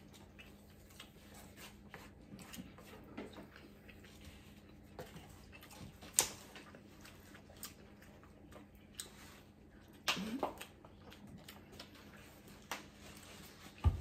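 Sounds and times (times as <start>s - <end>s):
chewing: 0.0s - 13.8s.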